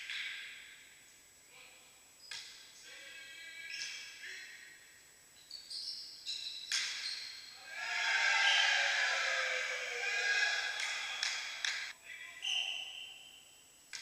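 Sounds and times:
shoes squeaking on floor: 5.4 - 7.6
volleyball hits: 6.7 - 7.2.

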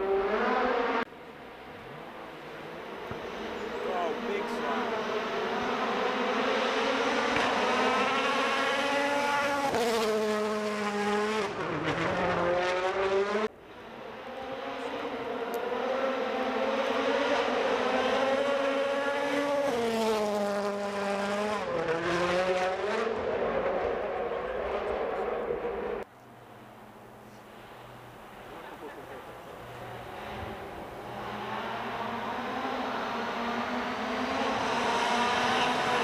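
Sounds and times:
rally car engines passing: 0.0 - 36.0.

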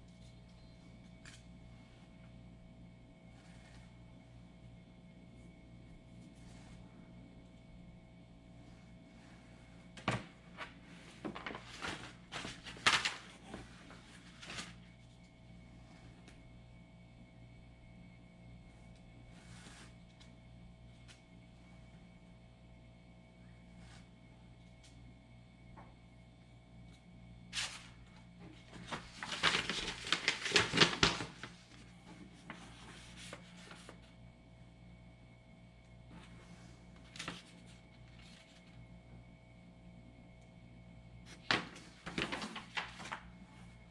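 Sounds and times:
paper sheet rustling and crackling: 8.7 - 16.1, 27.5 - 34.2, 36.2 - 38.8, 41.3 - 43.8.

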